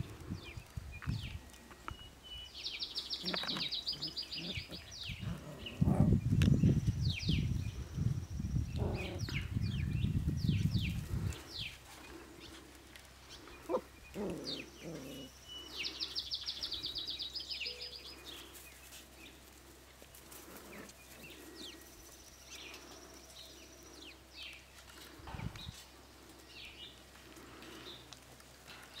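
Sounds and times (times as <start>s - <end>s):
birdsong trill: 0.4s - 11.8s, 13.2s - 19.4s
bird chirps and calls: 1.9s - 11.8s, 13.4s - 18.6s.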